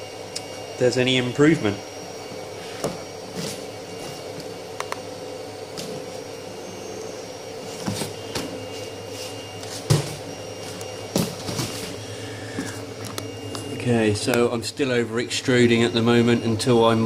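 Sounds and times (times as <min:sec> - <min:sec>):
steady machine hum: 0:00.0 - 0:17.0.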